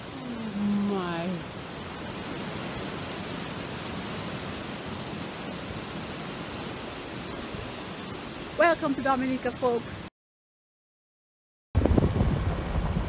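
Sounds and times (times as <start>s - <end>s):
steady outdoor hiss: 0.0s - 10.1s.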